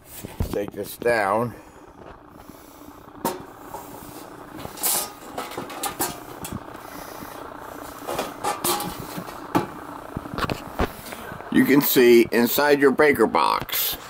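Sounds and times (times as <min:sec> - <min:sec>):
metal cover scraping: 0:02.9 - 0:11.2.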